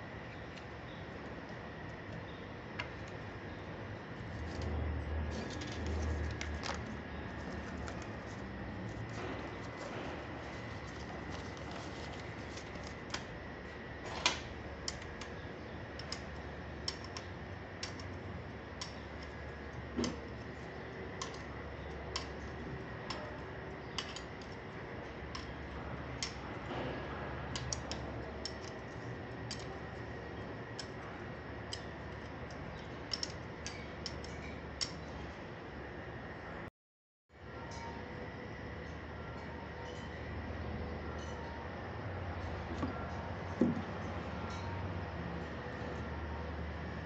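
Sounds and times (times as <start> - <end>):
steady hum: 0.0 - 36.7
spanner clicking on metal bolts: 14.0 - 18.2, 31.7 - 35.1.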